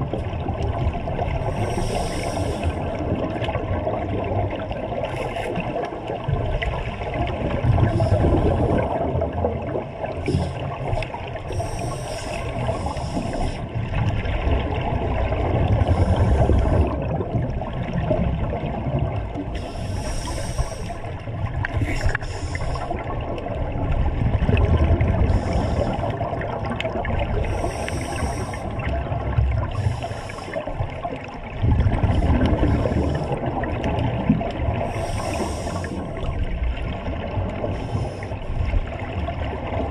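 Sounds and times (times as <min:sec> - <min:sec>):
exhaled bubbles rumbling: 0:00.0 - 0:39.9
regulator breath hiss: 0:01.6 - 0:02.8, 0:11.5 - 0:13.6, 0:19.6 - 0:21.1, 0:21.8 - 0:23.0, 0:25.3 - 0:26.1, 0:27.4 - 0:28.7, 0:29.8 - 0:30.6, 0:34.9 - 0:36.1.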